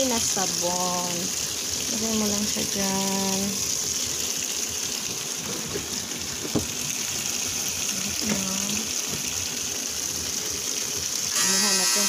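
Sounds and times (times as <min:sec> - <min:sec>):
water rushing into washing machine: 0:00.0 - 0:12.0
knock: 0:06.4 - 0:06.7.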